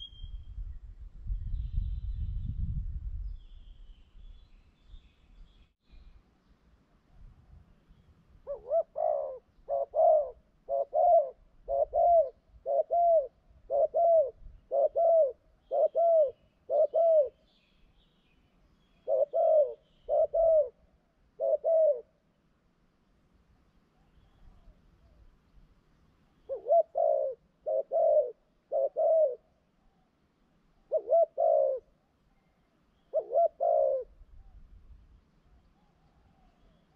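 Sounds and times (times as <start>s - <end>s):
dove cooing: 8.4s - 17.4s, 19.0s - 22.2s, 26.4s - 30.1s, 30.8s - 34.2s.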